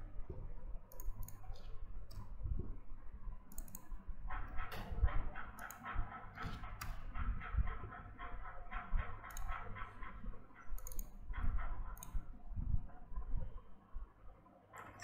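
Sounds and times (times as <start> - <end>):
keyboard keys clicking: 10.8 - 11.1.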